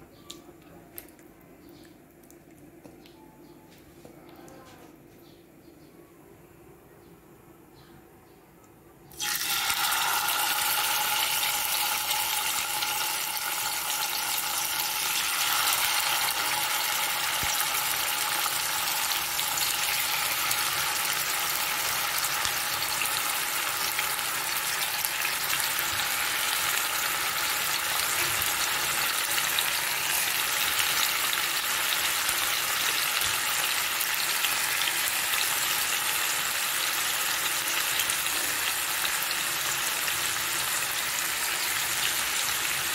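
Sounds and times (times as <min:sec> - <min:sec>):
chicken sizzling in hot oil: 0:09.1 - 0:42.9.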